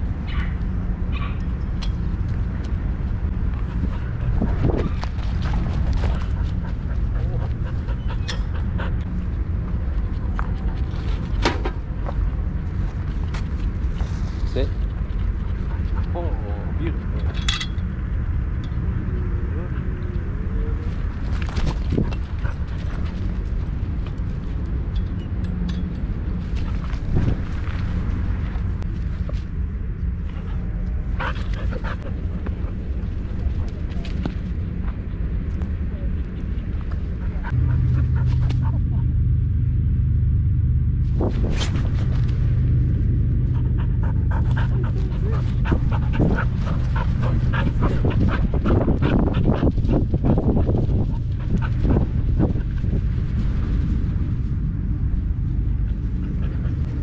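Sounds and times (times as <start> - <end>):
wind rumble and rubbing: 0.0 - 57.0
dog panting quickly: 3.7 - 9.2, 31.2 - 32.3, 43.5 - 53.0.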